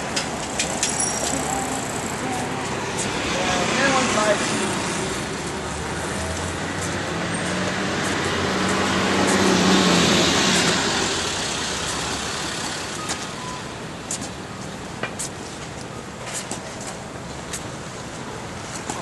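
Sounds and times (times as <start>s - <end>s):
busy road traffic: 0.0s - 19.0s
vehicle engine hum passing: 1.0s - 15.6s.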